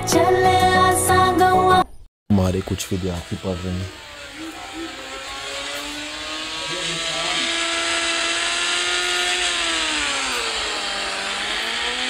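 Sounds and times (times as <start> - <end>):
motor whining: 2.4 - 12.0.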